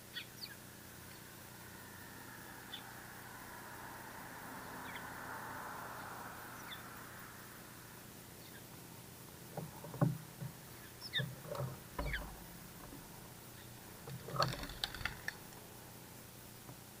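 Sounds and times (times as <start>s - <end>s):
sparrow chirps: 0.1s - 1.2s, 10.8s - 11.3s
birds scratching and pecking: 9.5s - 15.8s.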